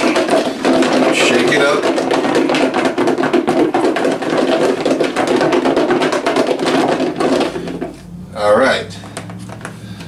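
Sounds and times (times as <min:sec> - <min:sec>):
food rattling in plastic container: 0:00.0 - 0:08.0.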